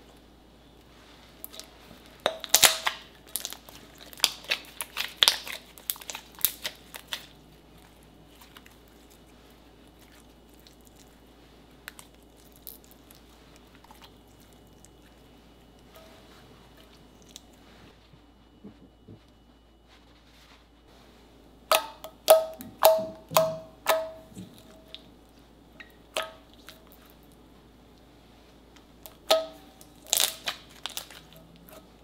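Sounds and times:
slime crackling and popping: 1.4s - 11.2s, 11.8s - 15.8s, 29.0s - 31.7s.

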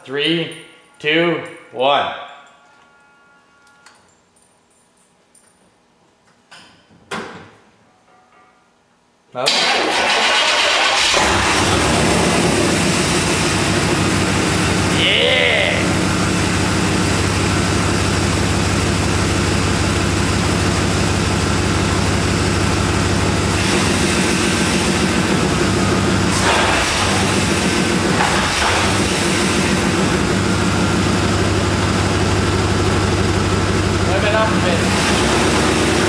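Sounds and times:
car engine running: 10.8s - 36.0s.

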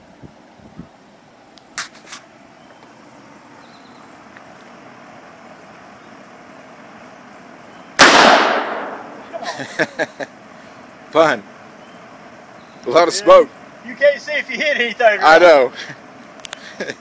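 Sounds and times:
pistol shot: 8.0s - 9.2s.

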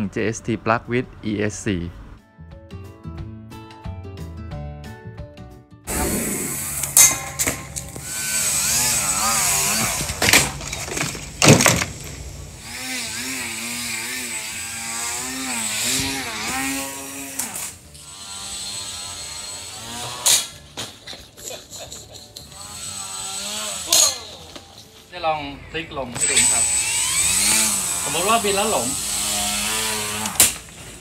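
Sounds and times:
rc plane motor buzzing: 5.9s - 10.6s, 12.4s - 20.6s, 22.4s - 24.6s, 26.2s - 31.0s.

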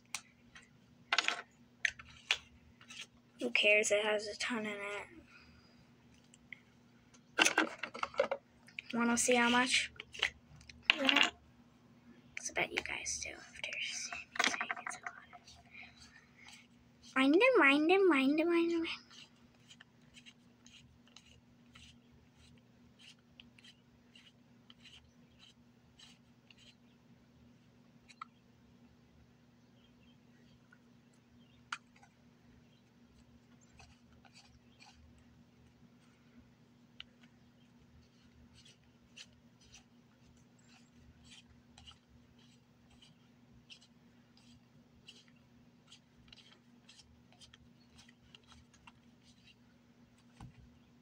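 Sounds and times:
low steady hum: 0.0s - 51.0s
plastic tube clicking and scratching: 38.1s - 49.6s.

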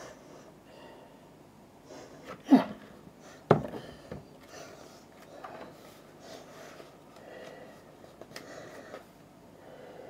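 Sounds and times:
knocks of books and packaging: 3.5s - 4.3s.

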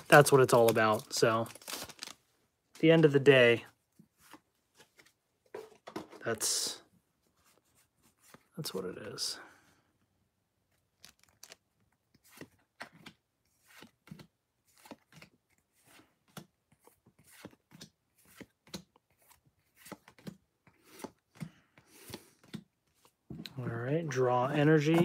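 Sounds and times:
cards flicking and rubbing: 11.0s - 23.2s.

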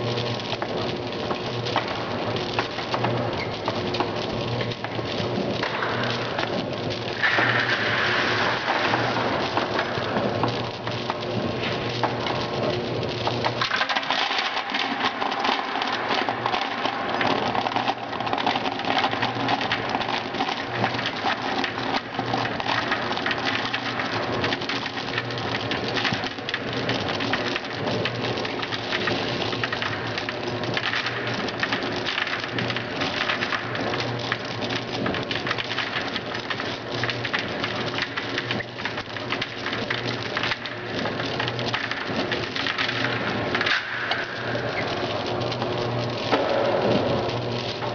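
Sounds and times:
machine hum: 0.0s - 47.9s
small pieces rattling in steel hopper: 13.6s - 27.7s.

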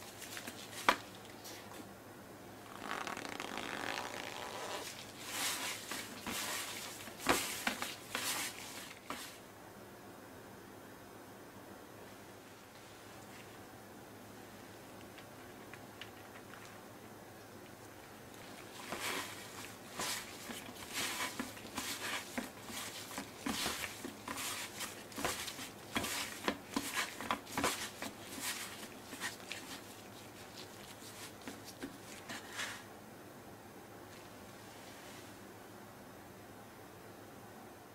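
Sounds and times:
chicken patted in flour: 5.2s - 9.4s, 18.4s - 32.8s.

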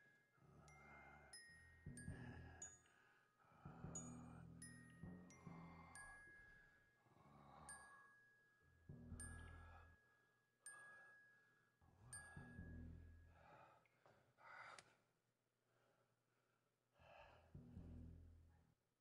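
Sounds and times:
bell-like chime: 4.0s - 12.6s.

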